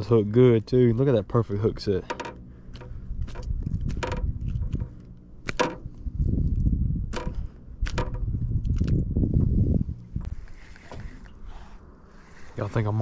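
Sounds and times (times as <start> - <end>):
low uneven rumbling: 0.0 - 13.0
sharp clicks and knocks: 2.0 - 5.9, 7.1 - 9.0.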